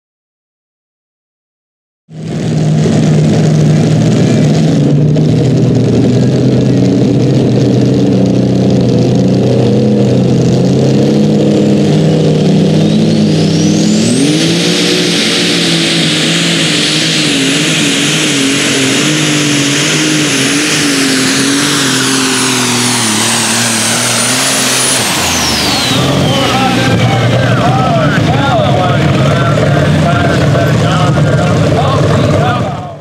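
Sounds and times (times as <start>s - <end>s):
diesel engine running flat out: 2.1s - 33.0s
turbocharger whistle: 9.9s - 33.0s.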